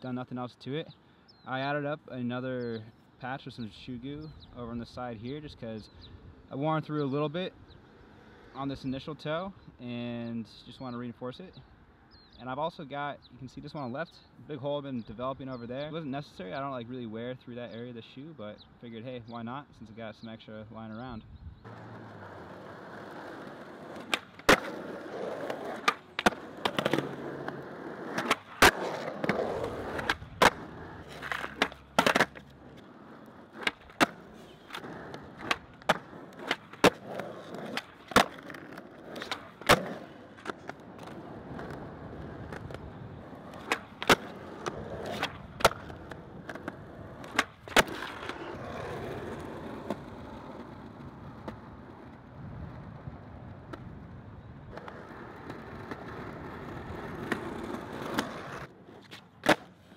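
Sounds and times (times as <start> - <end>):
skateboard wheels rolling on asphalt: 0.9 - 13.8, 20.8 - 59.9
skateboard tail popping: 21.6 - 59.9
skateboard slapping down: 21.7 - 50.0.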